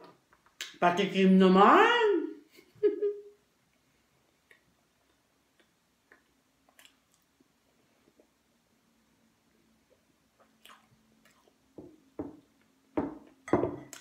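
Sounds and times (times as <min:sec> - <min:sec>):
chewing: 0:04.5 - 0:07.3.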